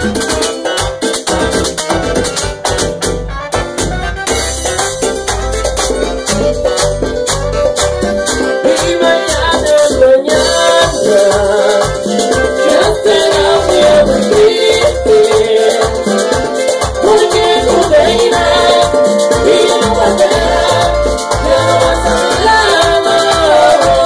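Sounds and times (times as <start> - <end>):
latin band music: 0.0 - 24.0
metal scraper rhythm: 0.0 - 24.0.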